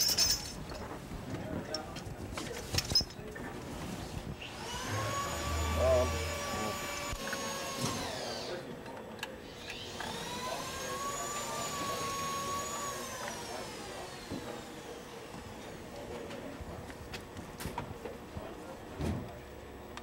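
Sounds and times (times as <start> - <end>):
power drill whining: 4.5 - 8.7, 9.5 - 15.3.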